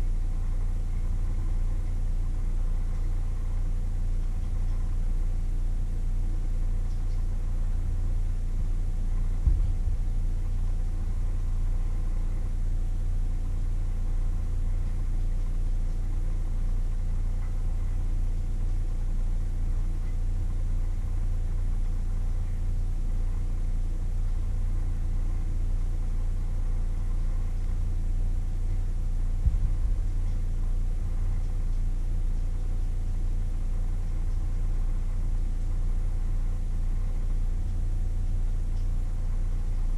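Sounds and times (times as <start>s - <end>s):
low mechanical hum: 0.0s - 39.9s
dull thumps: 8.6s - 10.2s, 29.4s - 30.4s.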